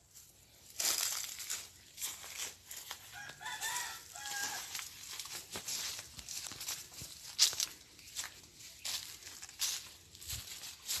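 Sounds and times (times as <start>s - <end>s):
footsteps through dry leaves: 0.0s - 11.0s
rooster crowing: 3.0s - 4.9s.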